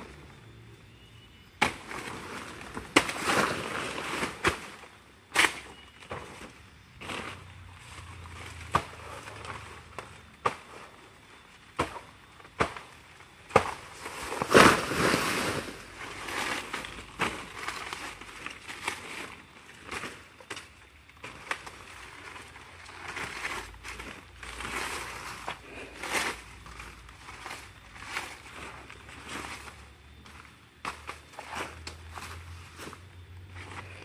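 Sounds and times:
machete chopping plant: 1.6 - 6.3, 11.7 - 12.9, 13.5 - 15.2
dry leaves rustling and crackling: 1.7 - 10.2, 13.8 - 34.0.

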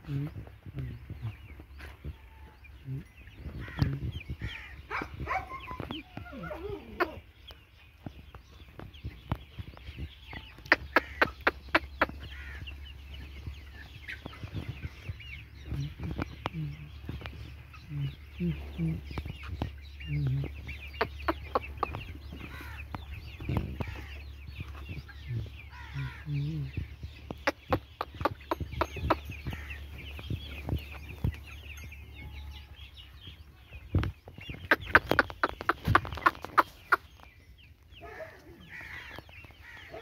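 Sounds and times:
chickens clucking: 0.0 - 40.0
sharp clicks and taps: 27.3 - 29.2.

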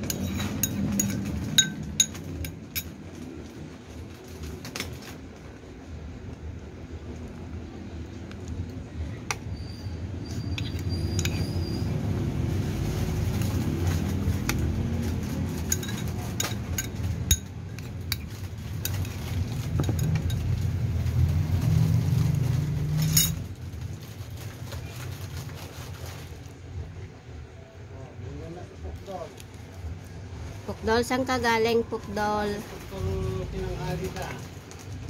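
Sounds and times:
spoon clinking against ceramic bowl: 0.0 - 2.9, 15.7 - 18.2.

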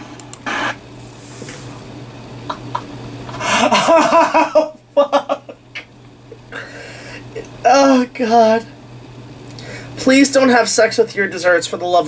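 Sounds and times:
man laughing: 2.6 - 7.6.

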